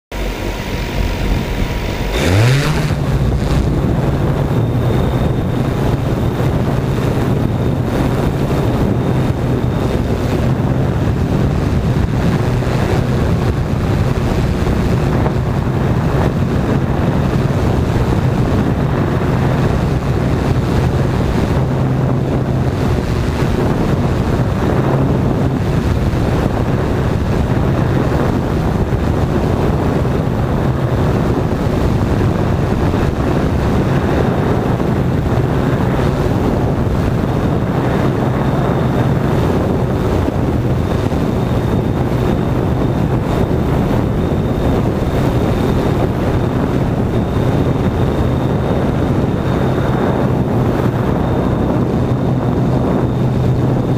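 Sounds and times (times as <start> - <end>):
drone propellers whining: 0.1 - 53.9
wind on microphone: 0.1 - 53.9.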